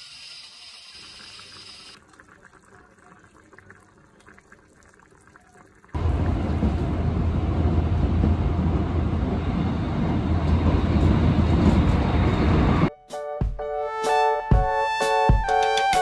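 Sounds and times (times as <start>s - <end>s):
train rumble inside carriage: 6.0s - 12.9s.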